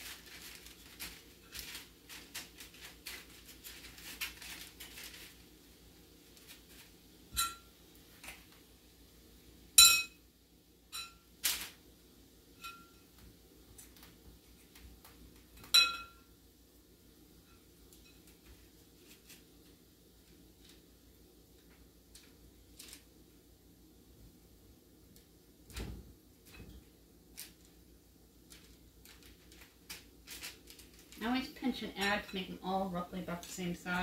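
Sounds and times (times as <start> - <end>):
dough rustling and tapping: 0.0 - 8.7, 12.6 - 16.3, 25.1 - 34.0.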